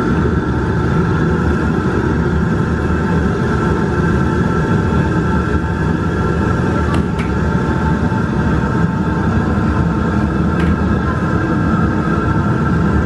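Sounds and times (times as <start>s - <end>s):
gas burner low rumble: 0.0s - 13.0s.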